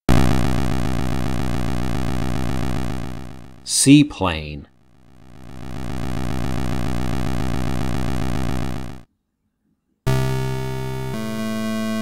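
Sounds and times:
synthesized pulsing engine buzz: 0:00.0 - 0:03.7, 0:04.8 - 0:09.0, 0:10.1 - 0:12.0
synthesizer music: 0:05.2 - 0:09.0, 0:10.1 - 0:12.0.

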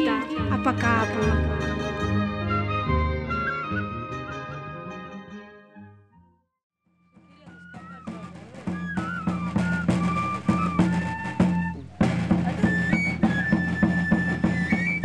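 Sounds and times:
high melody line: 0:00.0 - 0:05.8
steady drum beat: 0:07.2 - 0:15.0.

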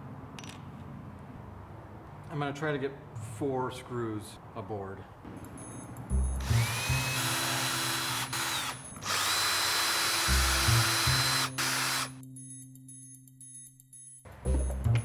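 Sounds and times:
cordless drill drilling wood: 0:06.4 - 0:12.2.

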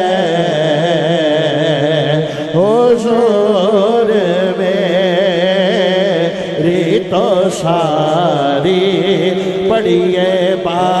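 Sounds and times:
man singing into a microphone: 0:00.0 - 0:11.0
steady held drone: 0:00.0 - 0:11.0.

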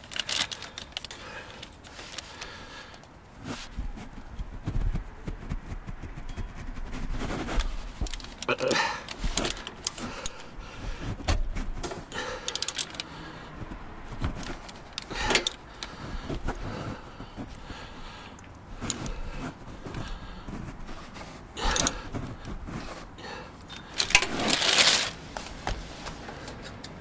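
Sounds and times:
wrench clinking against metal: 0:12.4 - 0:13.1, 0:21.7 - 0:22.0, 0:23.6 - 0:24.3
ratchet clicking: 0:12.5 - 0:13.1.

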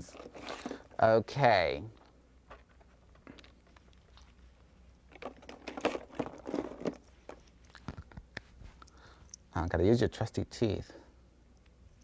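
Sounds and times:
painting supplies tapping and rustling: 0:05.1 - 0:08.9.

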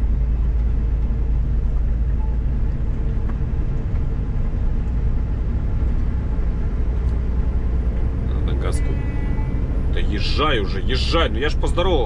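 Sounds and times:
truck diesel engine rumble: 0:00.0 - 0:12.0.

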